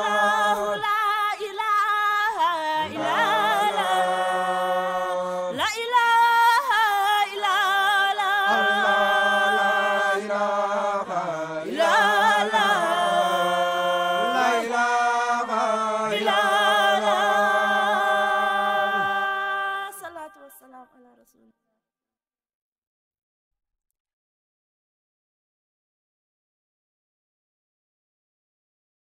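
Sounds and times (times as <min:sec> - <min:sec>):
group of voices chanting: 0:02.8 - 0:05.6, 0:08.4 - 0:19.6.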